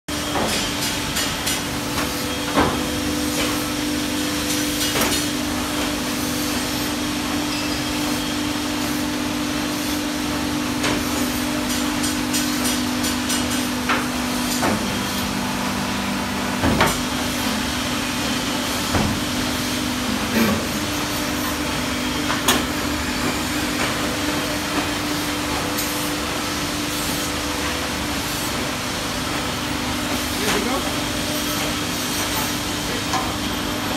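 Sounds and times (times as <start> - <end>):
hydraulic press pump humming: 0.1 - 33.9
workshop noise: 0.1 - 33.9.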